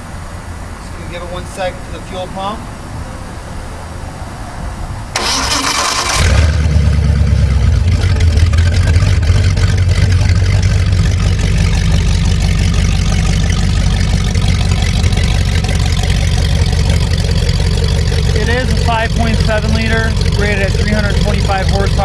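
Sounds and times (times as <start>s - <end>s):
engine cranking on starter: 5.1s - 22.0s
engine idling: 5.1s - 22.0s.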